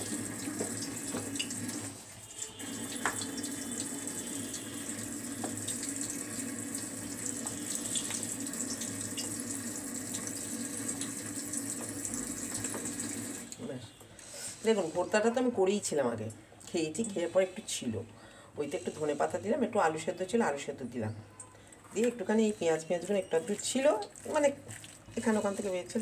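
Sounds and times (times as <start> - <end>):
small wet clicks: 23.8 - 25.7
hand squishing wet food: 24.0 - 25.2.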